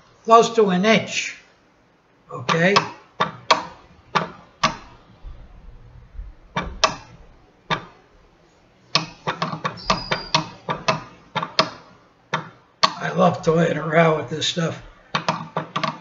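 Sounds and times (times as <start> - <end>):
reed switch oscillator clicking: 2.5 - 8.1, 8.9 - 13.1.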